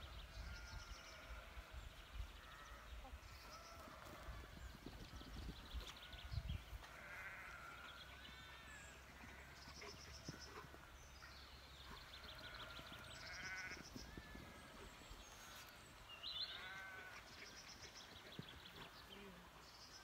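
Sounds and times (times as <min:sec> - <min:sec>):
distant wavering animal calls: 0:12.0 - 0:15.7, 0:16.4 - 0:17.2.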